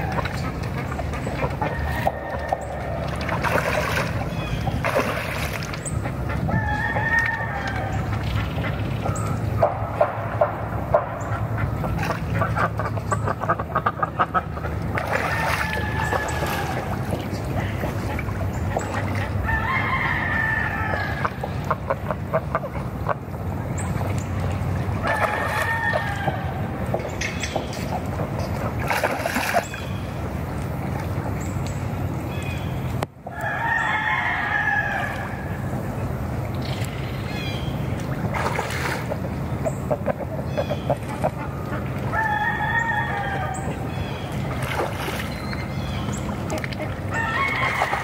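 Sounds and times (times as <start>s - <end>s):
ducks quacking: 0.0s - 27.1s, 39.0s - 45.2s.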